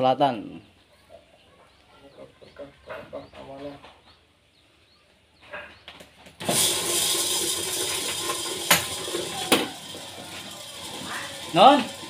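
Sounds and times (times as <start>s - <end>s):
popcorn machine rattling: 6.4s - 12.0s.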